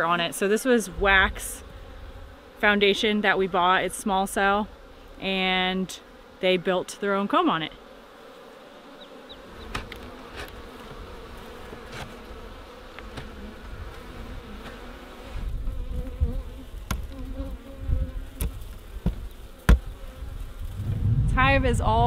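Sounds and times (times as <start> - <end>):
honey bees buzzing: 0.0 - 22.0
low rumbling and knocks: 20.7 - 22.0.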